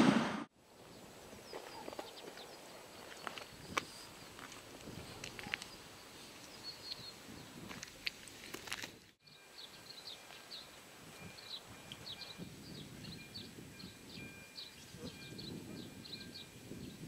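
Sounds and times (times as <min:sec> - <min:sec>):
small birds chirping: 0:00.8 - 0:07.7, 0:09.3 - 0:17.0.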